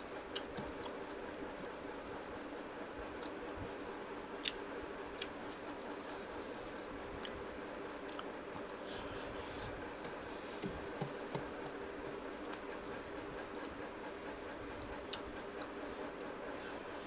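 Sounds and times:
steady low hum: 0:00.0 - 0:17.0
chewing: 0:04.3 - 0:17.0.

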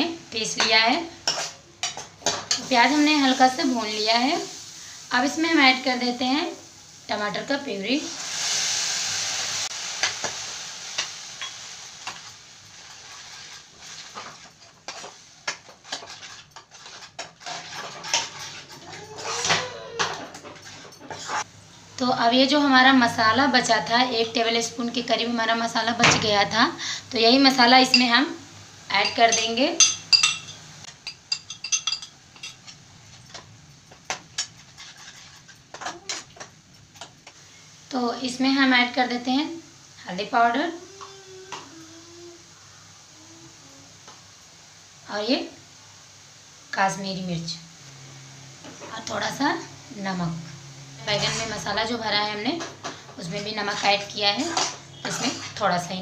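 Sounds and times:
soft sizzle: 0:00.0 - 0:56.0
spoon scraping frying pan: 0:00.6 - 0:03.3, 0:11.0 - 0:21.5, 0:29.0 - 0:37.2, 0:51.1 - 0:56.0.

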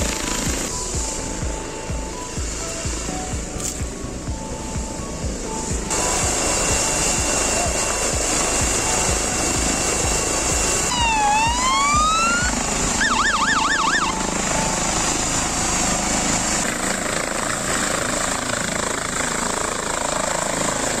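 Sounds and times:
warbling siren-like tone: 0:00.0 - 0:16.7
helicopter rotor and turbine: 0:00.0 - 0:21.0.

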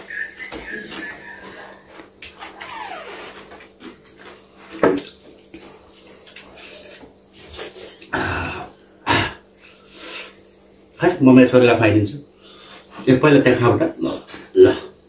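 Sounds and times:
chewing and mouth noises: 0:00.0 - 0:08.8
hands mixing food on plates: 0:00.0 - 0:11.1.

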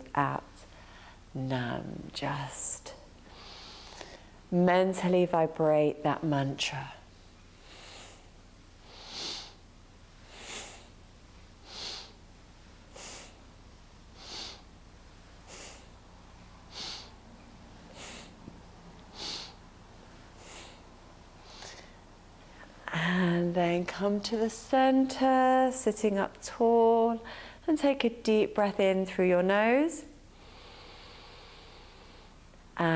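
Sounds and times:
woman breathing through the nose: 0:03.2 - 0:04.4, 0:07.6 - 0:09.6, 0:10.2 - 0:11.0, 0:11.6 - 0:12.2, 0:12.9 - 0:13.4, 0:14.2 - 0:14.7, 0:15.4 - 0:16.0, 0:16.7 - 0:17.2, 0:17.9 - 0:18.4, 0:19.1 - 0:19.6, 0:20.4 - 0:22.0, 0:27.2 - 0:27.6, 0:30.4 - 0:32.4.

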